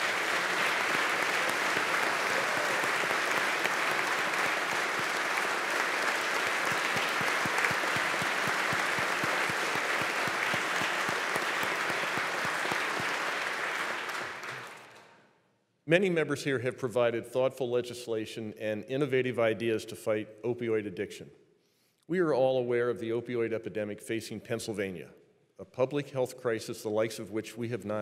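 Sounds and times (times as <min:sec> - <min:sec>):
audience applause: 0:00.0 - 0:15.0
close single claps: 0:00.0 - 0:15.2.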